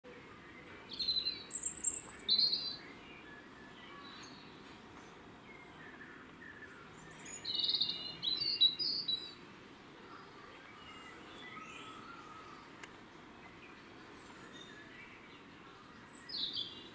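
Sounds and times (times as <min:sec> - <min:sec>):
faint bird chirps: 0:00.1 - 0:09.4, 0:10.0 - 0:16.9
swifts screaming: 0:10.2 - 0:12.8.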